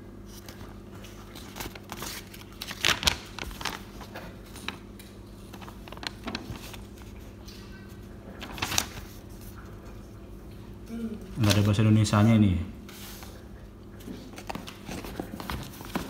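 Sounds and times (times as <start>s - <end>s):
steady low hum: 0.0s - 16.0s
paper rustling and crinkling: 0.2s - 10.0s, 11.3s - 11.8s, 14.0s - 16.0s.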